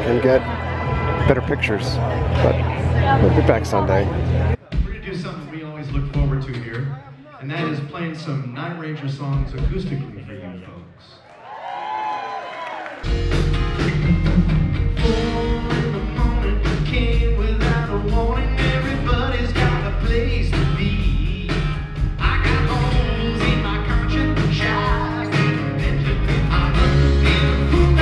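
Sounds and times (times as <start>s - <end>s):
drums: 0.0s - 10.3s, 12.9s - 28.0s
electric bass: 13.1s - 28.0s
man singing lead: 15.0s - 28.0s.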